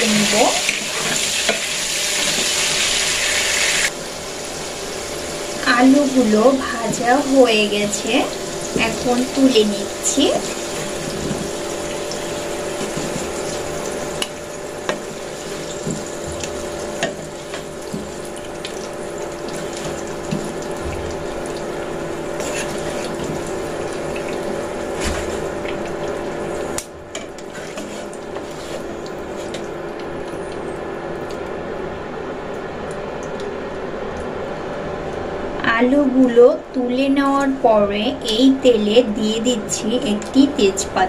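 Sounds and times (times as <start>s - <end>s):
oil sizzling in a wok: 0.0s - 30.8s
steady low hum: 3.9s - 41.0s
skimmer scraping against a pan: 22.4s - 23.3s, 27.4s - 29.6s.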